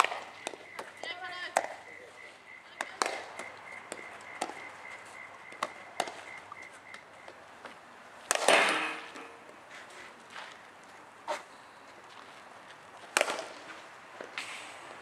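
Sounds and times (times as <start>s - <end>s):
bat striking ball: 0.0s - 0.9s, 5.6s - 6.4s, 8.3s - 9.4s, 13.1s - 13.7s.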